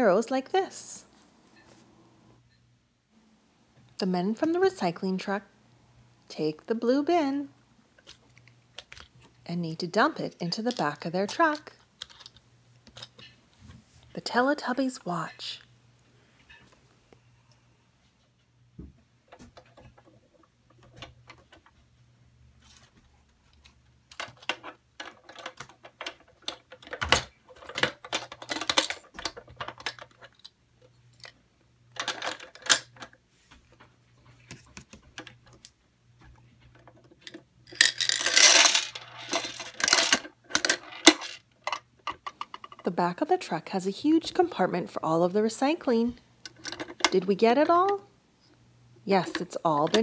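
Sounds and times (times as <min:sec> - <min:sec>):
plastic toy parts clicking: 0:10.6 - 0:13.2, 0:24.1 - 0:30.6, 0:31.2 - 0:33.2, 0:36.8 - 0:42.8
plastic toys rattling out of bin: 0:37.2 - 0:41.4.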